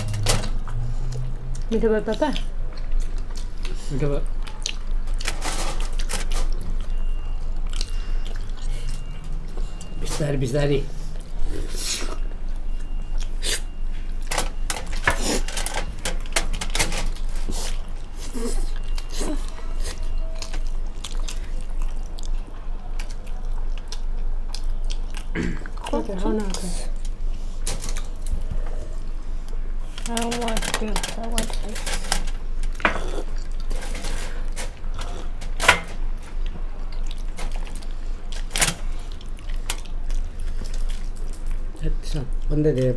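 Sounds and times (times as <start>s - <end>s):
aluminium foil crinkling: 0.0s - 9.1s, 14.2s - 24.8s, 29.8s - 42.9s
people chewing and slurping: 0.0s - 42.9s
foil crinkling and clicking: 29.9s - 32.8s.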